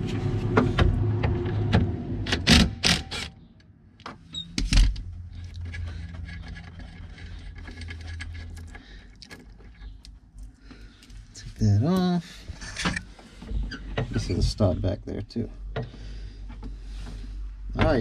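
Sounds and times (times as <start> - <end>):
metallic clicks and rattles: 5.3 - 10.5.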